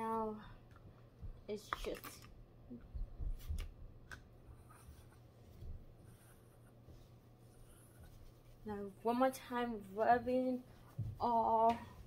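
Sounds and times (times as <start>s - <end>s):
hands rustling dog fur: 4.5s - 12.0s.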